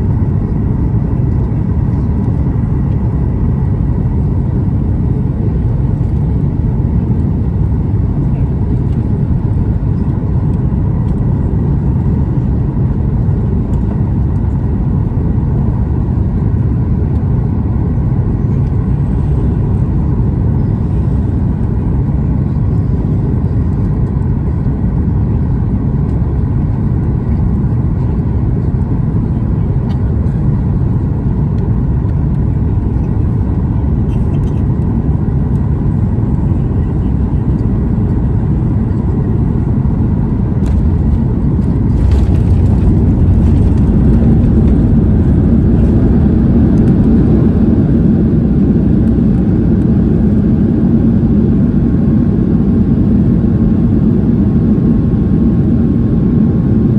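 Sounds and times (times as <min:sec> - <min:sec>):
airplane cabin rumble: 0:00.0 - 0:56.9
rushing air: 0:40.6 - 0:47.6.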